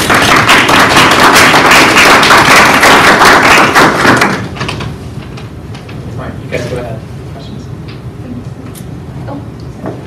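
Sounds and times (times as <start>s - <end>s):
audience applauding: 0.0s - 4.5s.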